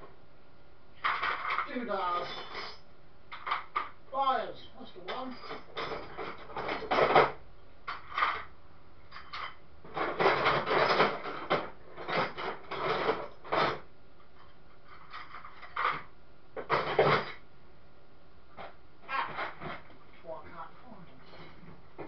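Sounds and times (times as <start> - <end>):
metal tools scraping: 1.0 - 3.8, 5.1 - 7.2, 9.1 - 13.8.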